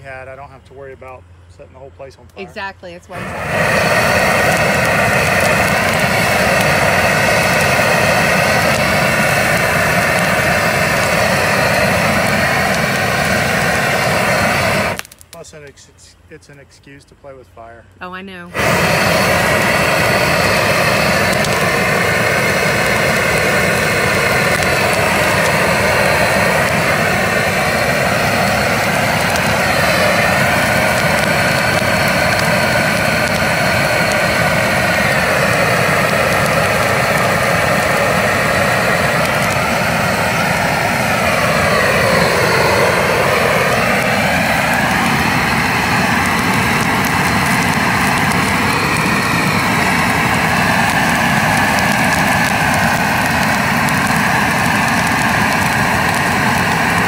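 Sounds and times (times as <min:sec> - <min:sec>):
torch flame rushing: 0:02.1 - 0:15.6, 0:18.5 - 0:57.0.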